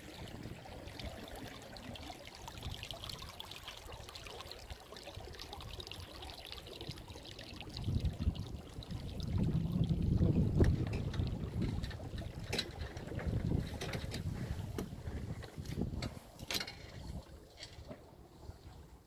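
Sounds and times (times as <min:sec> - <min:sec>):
water splashing along boat hull: 0:00.0 - 0:19.0
wind gusts on microphone: 0:07.6 - 0:17.2.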